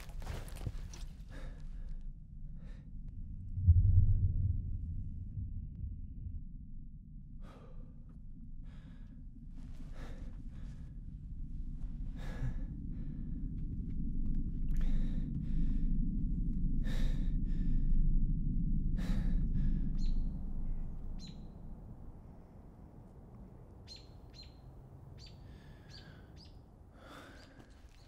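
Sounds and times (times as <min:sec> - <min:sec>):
low rumbling drone with whooshes: 0:00.0 - 0:26.3
high bird chirps: 0:23.9 - 0:26.6.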